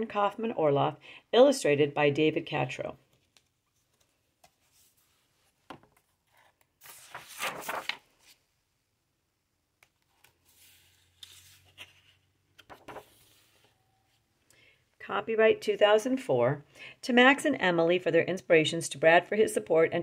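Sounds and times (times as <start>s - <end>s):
book pages turning: 3.0s - 8.4s, 9.8s - 14.2s.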